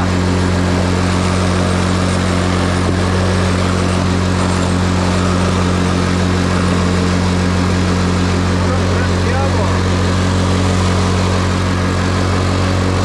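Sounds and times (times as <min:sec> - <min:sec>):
atv engine idling: 0:00.0 - 0:13.0.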